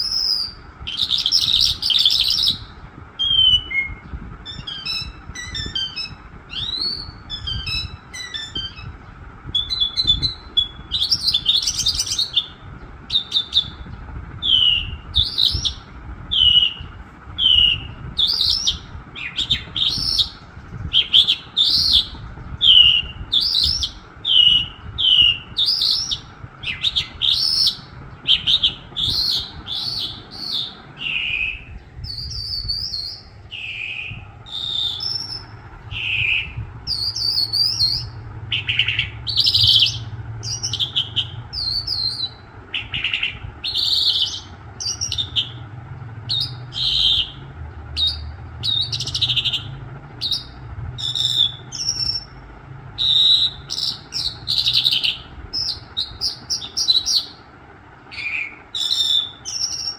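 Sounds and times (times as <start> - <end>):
songbird chirping: 0.0 - 52.4, 53.0 - 59.9.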